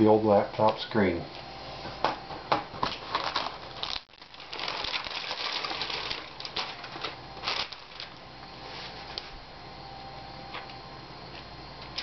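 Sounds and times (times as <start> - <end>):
metallic plastic bag crinkling: 3.0 - 8.2.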